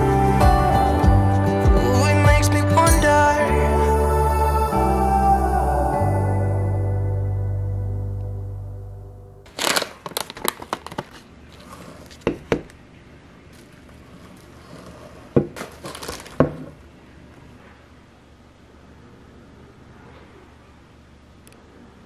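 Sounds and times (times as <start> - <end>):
packaging crinkling: 9.5 - 12.3, 15.6 - 16.7.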